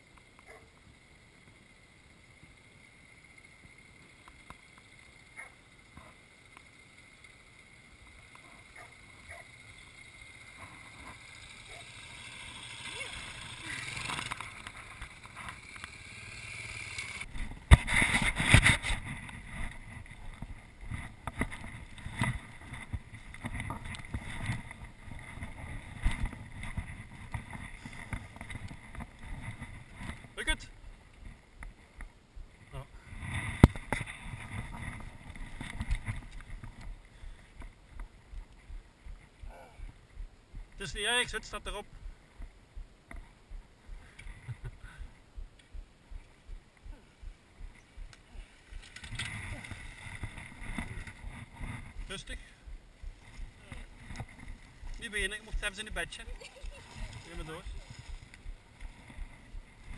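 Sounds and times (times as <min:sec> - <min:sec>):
motorcycle engine: 0:00.0 - 0:59.9
knocks and jolts on dirt track: 0:08.2 - 0:32.1, 0:33.0 - 0:42.5, 0:46.5 - 0:59.9
wind noise: 0:17.2 - 0:59.9.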